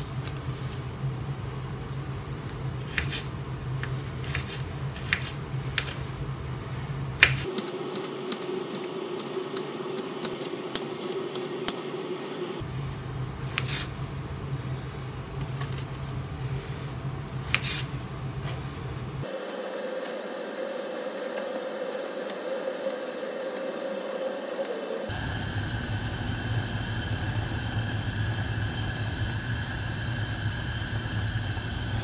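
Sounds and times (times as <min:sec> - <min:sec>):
low hum: 0:07.8 - 0:32.0.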